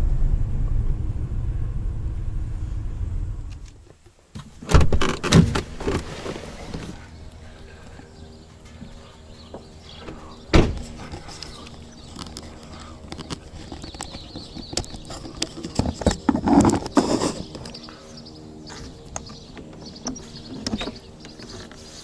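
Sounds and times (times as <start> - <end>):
faint steady hum: 0.0 - 22.0
truck door shutting: 4.6 - 6.1, 10.1 - 10.9.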